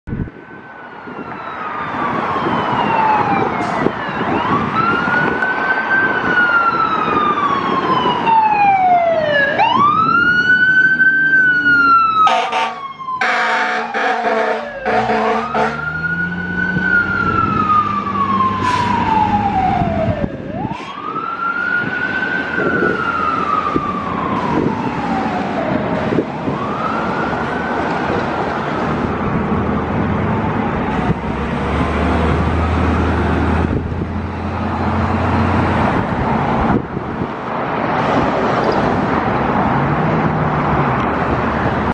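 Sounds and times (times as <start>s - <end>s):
traffic rumble: 0.0s - 41.9s
mechanical siren wailing: 0.5s - 29.4s
air horn blasts: 12.2s - 16.0s.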